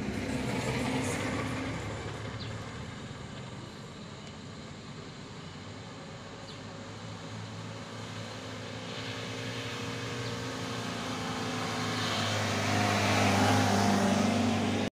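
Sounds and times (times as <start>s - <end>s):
pickup truck engine passing by: 0.0s - 3.6s, 6.6s - 14.9s.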